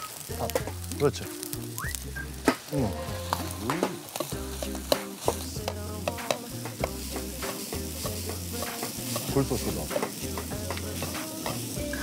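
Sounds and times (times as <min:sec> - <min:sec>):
rice sizzling in a wok: 0:00.0 - 0:12.0
metal ladle scraping a wok: 0:03.0 - 0:12.0.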